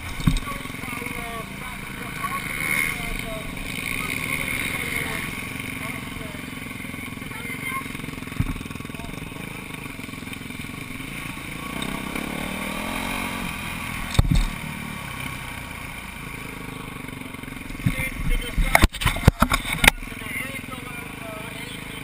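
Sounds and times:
motocross bike engine: 0.0s - 22.0s
thump: 8.4s - 8.6s.

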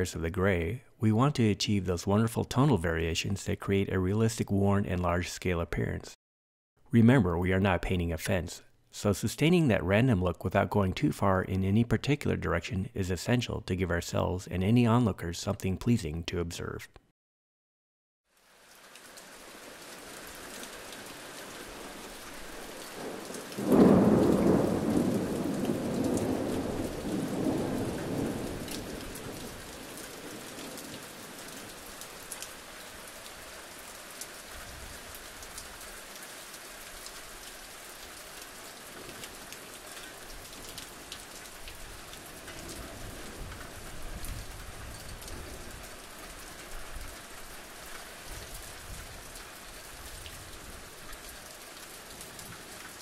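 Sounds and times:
steady rainfall: 18.3s - 53.0s
thunder rumbling: 22.6s - 32.0s, 40.4s - 45.8s.

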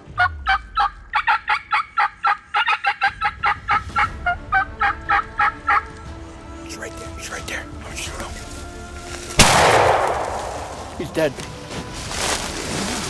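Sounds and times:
wild turkey calling: 0.2s - 5.9s.

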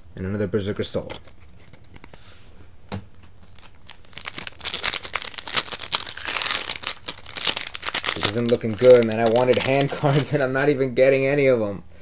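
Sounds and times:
foil wrapper crinkling and tearing: 3.4s - 10.7s.

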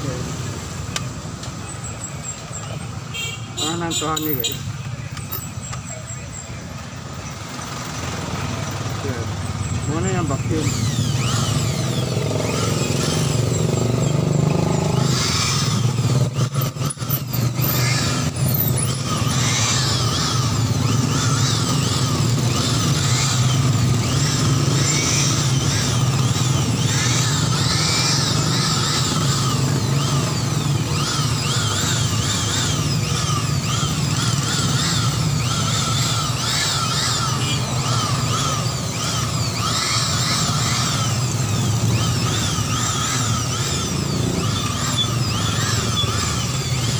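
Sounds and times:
clicks: 5.1s - 5.9s.

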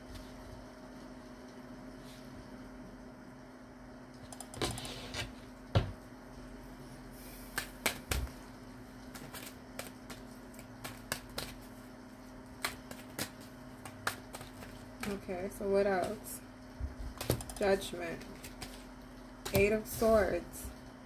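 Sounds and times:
faint steady hum: 0.0s - 21.0s
cards clicking and tapping: 7.5s - 8.4s, 9.0s - 11.7s, 12.6s - 15.2s, 19.4s - 20.2s.

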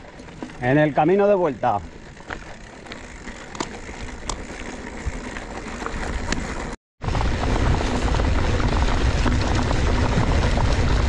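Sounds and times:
tyres rumbling over loose stones: 0.3s - 11.0s
wind buffeting microphone: 7.0s - 11.0s.

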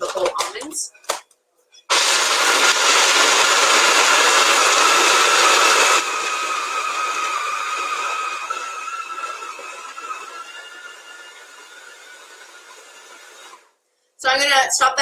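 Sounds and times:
food processor chopping nuts: 1.9s - 13.7s.

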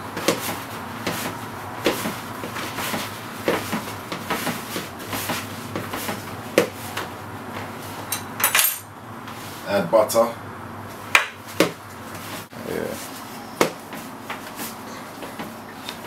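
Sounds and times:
dough kneading thumps: 0.0s - 8.1s, 10.9s - 12.5s, 13.5s - 16.0s.

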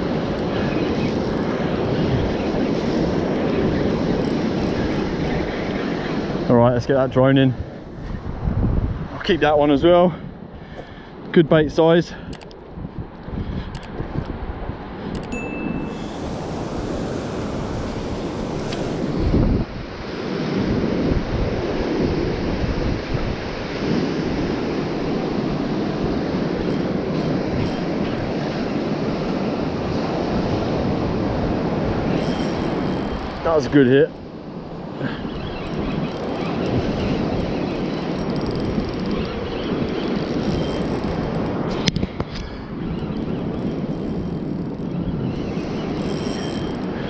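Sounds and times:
wind buffeting microphone: 0.0s - 47.0s
spinning reel cranking: 0.4s - 5.4s, 26.6s - 28.3s, 32.1s - 34.2s, 35.3s - 41.9s, 43.0s - 47.0s.

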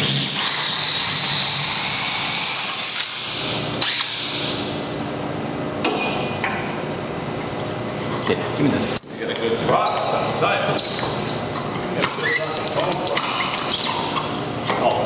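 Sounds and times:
cordless drill motor whine: 0.0s - 4.6s.

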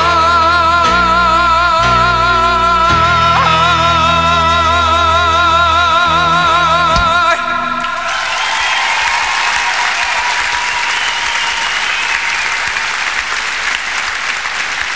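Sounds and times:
man singing with vibrato: 0.0s - 8.4s
audience applauding: 7.8s - 14.9s.

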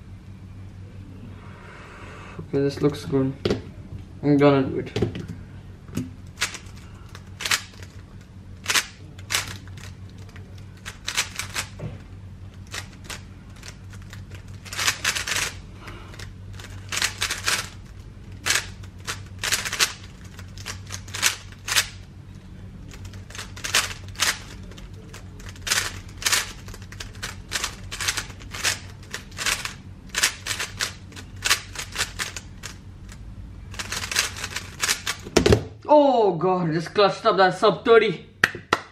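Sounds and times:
puzzle cube layers clacking: 6.4s - 8.0s, 8.6s - 11.8s, 12.5s - 15.6s, 16.2s - 22.0s, 22.9s - 32.8s, 33.7s - 35.3s.

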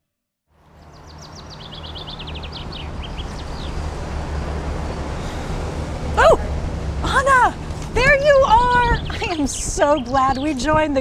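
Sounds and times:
low traffic rumble: 0.5s - 11.0s
bird chirping: 0.6s - 4.6s, 8.1s - 10.9s.

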